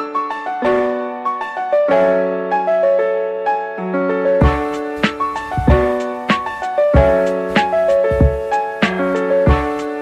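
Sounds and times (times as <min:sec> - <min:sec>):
keyboard music over beat: 0:04.3 - 0:10.0.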